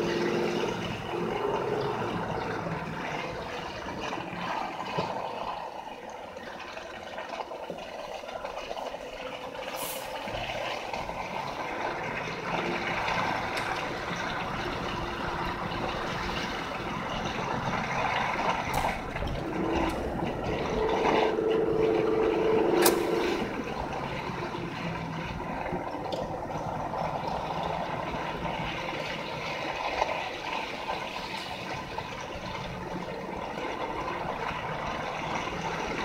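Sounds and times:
car engine and tyres on snow: 0.0 - 36.0
steady tone: 14.9 - 26.0.

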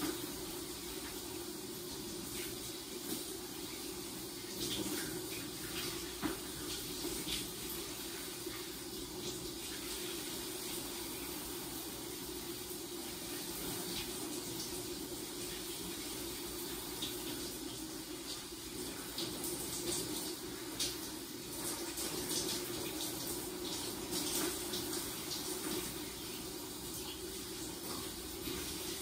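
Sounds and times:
shower water spattering on tiles: 4.2 - 11.4, 16.8 - 29.0.

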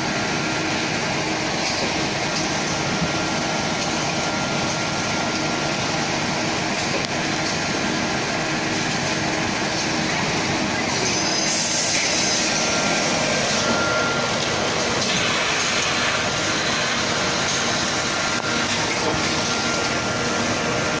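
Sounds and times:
packing machine running: 0.0 - 21.0.

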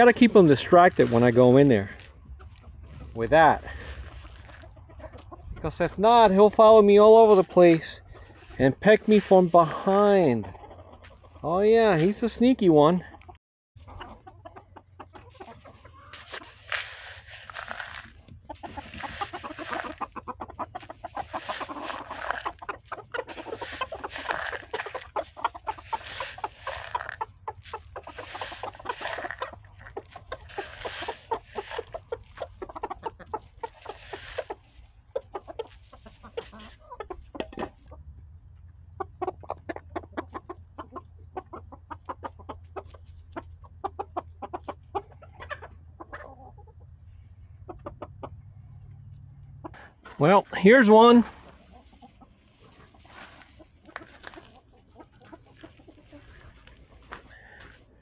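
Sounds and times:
chickens clucking: 0.0 - 58.0.

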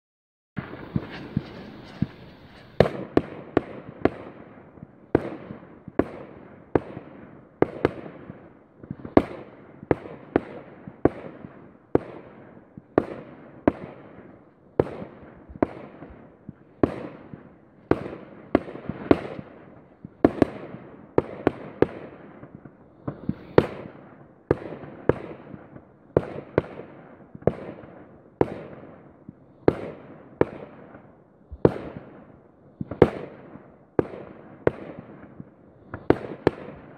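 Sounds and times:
fireworks bangs: 0.6 - 7.0, 13.0 - 28.9, 32.8 - 36.9.

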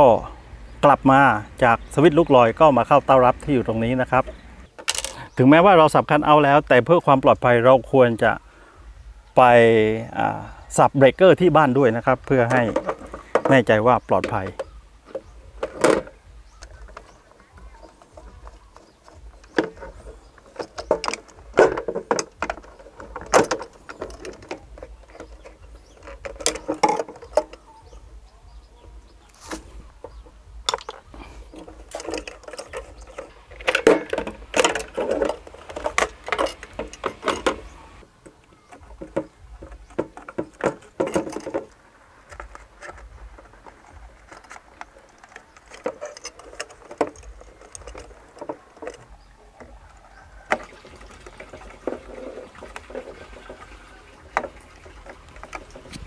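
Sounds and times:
plastic enclosure being handled: 12.1 - 27.8.

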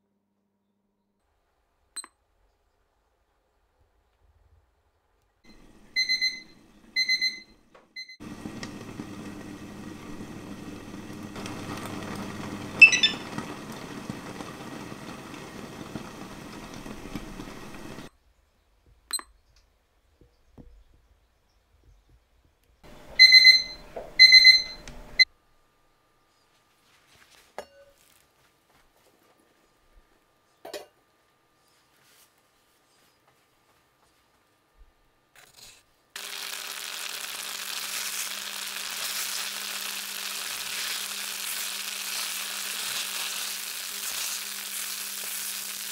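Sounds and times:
pot simmering hiss: 8.2 - 18.1, 36.2 - 45.9
short high electronic beeps: 12.8 - 13.2.

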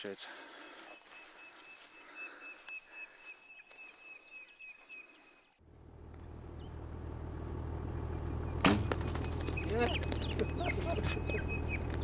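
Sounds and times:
low steady hum: 5.6 - 12.0.

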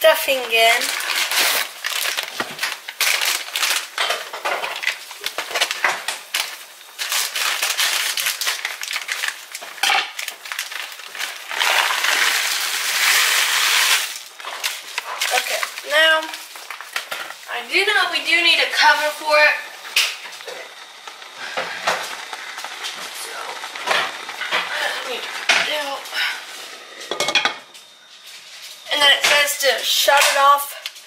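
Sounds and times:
plastic bag crinkling: 0.3 - 26.5
bread cubes poured into pot: 0.8 - 17.4.

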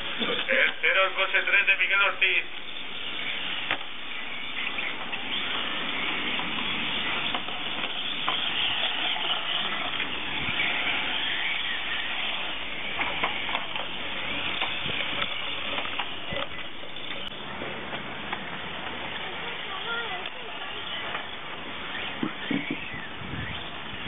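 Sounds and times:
electric toy car motors whining: 2.5 - 17.4.

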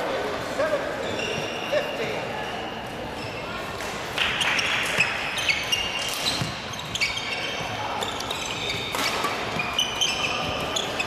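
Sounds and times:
shoes squeaking on gym floor: 0.9 - 11.0
rackets hitting shuttlecock: 3.8 - 6.6, 8.0 - 10.7.

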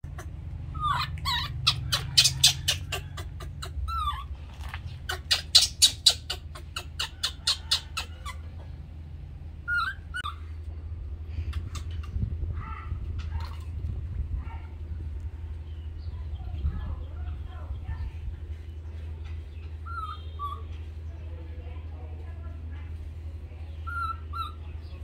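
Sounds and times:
low steady hum: 5.7 - 25.0
short squeaky animal calls: 19.9 - 20.7.

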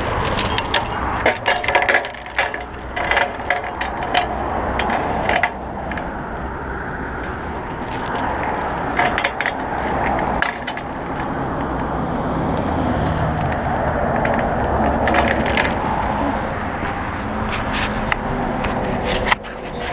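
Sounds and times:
steel chain clinking and rattling: 0.0 - 6.2, 7.2 - 16.5
road traffic noise: 0.0 - 19.9.

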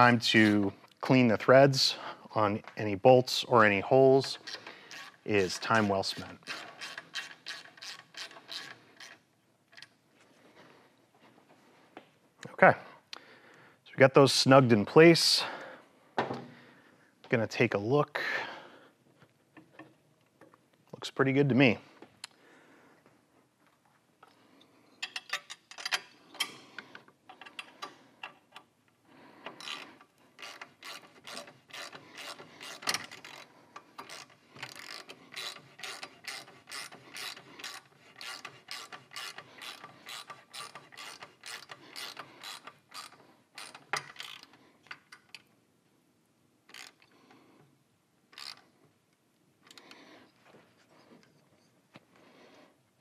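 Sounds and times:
ratchet wrench clicking: 6.4 - 9.1, 29.6 - 44.5, 46.7 - 47.1, 48.4 - 48.6.

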